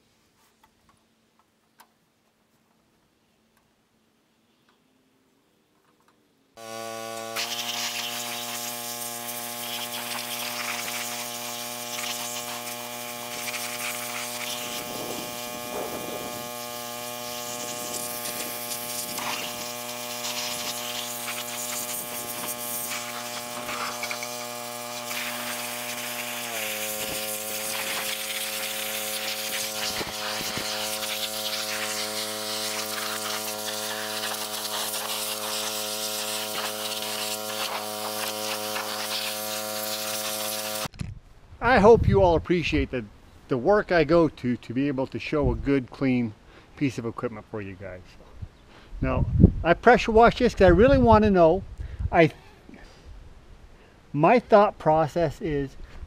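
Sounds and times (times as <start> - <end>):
pressure washer motor drone: 6.6 - 40.9
water spray hissing: 6.6 - 40.9.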